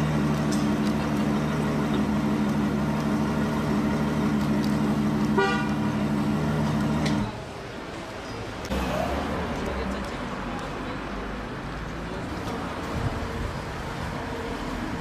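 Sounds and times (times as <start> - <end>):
sports car engine running: 0.0 - 7.2.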